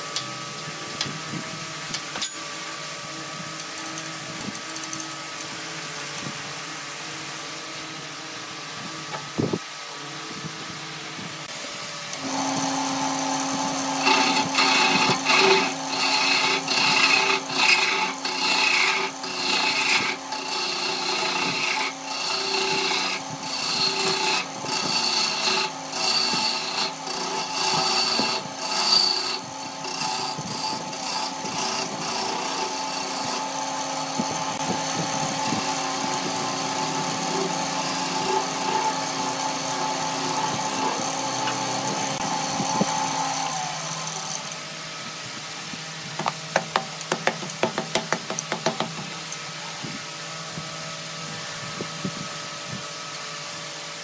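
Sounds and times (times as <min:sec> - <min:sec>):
wood lathe motor hum: 0:02.6 - 0:53.9
rasping strokes on wood: 0:12.2 - 0:44.4, 0:46.2 - 0:49.2.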